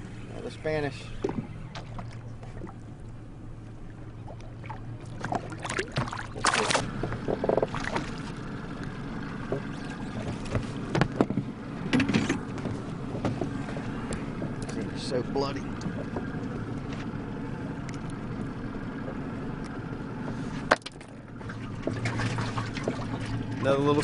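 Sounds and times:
water lapping against boat hull: 0:00.0 - 0:24.0
fish thrashing and splashing: 0:04.2 - 0:08.4, 0:20.7 - 0:23.7.

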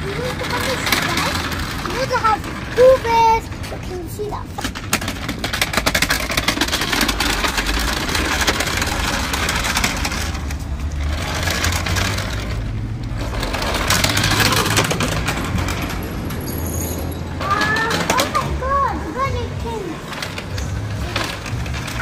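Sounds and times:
toy wheels rattling over brick paving: 0:00.0 - 0:22.0.

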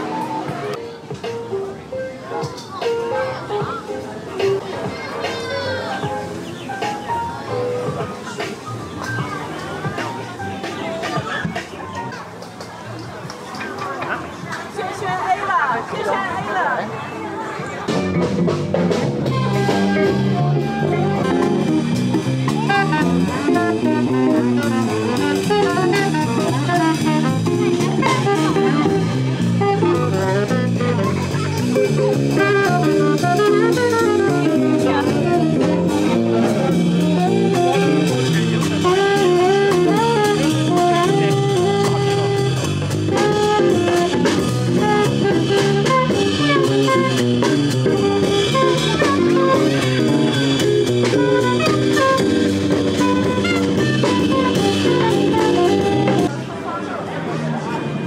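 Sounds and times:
drum kit: 0:00.0 - 0:15.1, 0:17.8 - 0:56.5
saxophone: 0:18.0 - 0:56.5.

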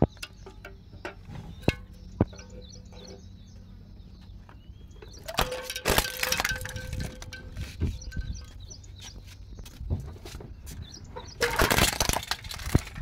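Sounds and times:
plastic toys cracking under tyre: 0:05.1 - 0:07.4, 0:11.4 - 0:13.0.

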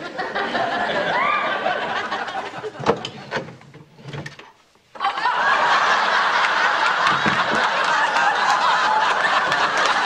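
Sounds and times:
studio audience laughing: 0:00.0 - 0:03.3, 0:05.0 - 0:10.0
utensils knocking and clattering: 0:07.0 - 0:07.7.

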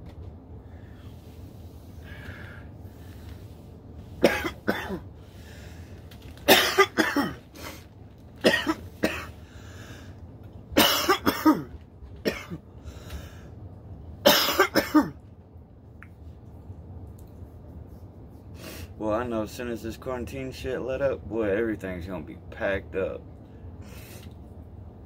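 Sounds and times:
man coughing hard: 0:04.2 - 0:05.1, 0:06.4 - 0:07.8, 0:08.4 - 0:09.4, 0:10.8 - 0:12.6, 0:14.2 - 0:15.2.

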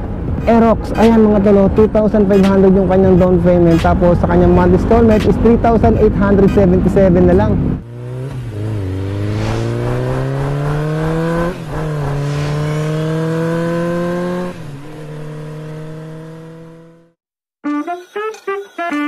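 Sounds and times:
engine accelerating through gears: 0:03.7 - 0:17.2.

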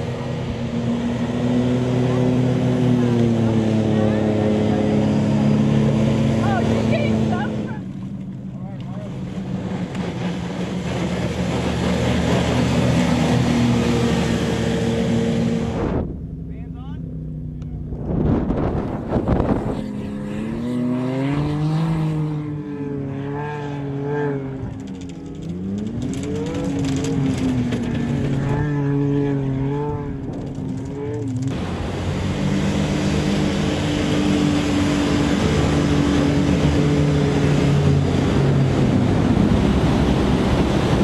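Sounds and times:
vehicle engine revving: 0:00.0 - 0:41.0
spray and surf rushing: 0:31.4 - 0:41.0.

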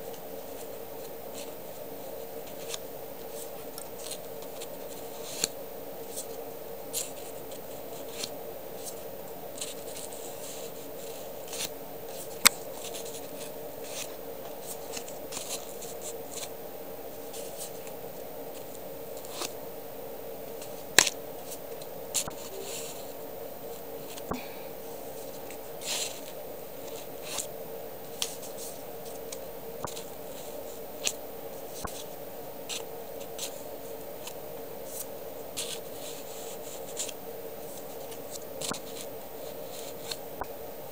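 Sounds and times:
steady low hum: 0:00.0 - 0:40.9
paper labels crinkling: 0:00.1 - 0:16.5.

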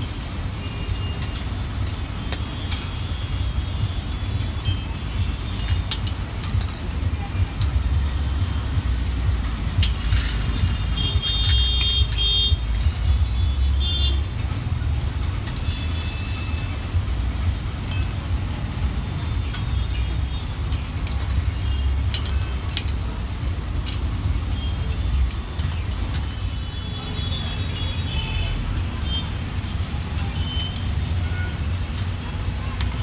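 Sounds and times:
street traffic rumble: 0:00.0 - 0:33.0.

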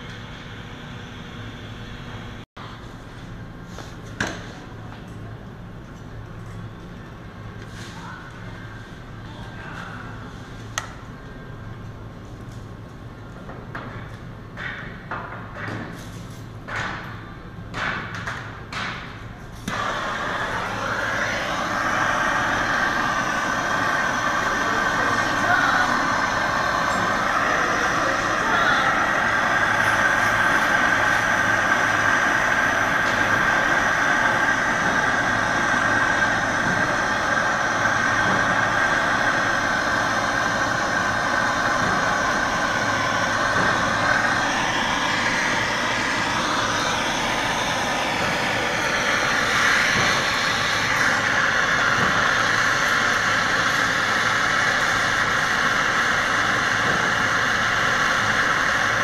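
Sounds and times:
gas torch hissing: 0:19.6 - 0:59.0.

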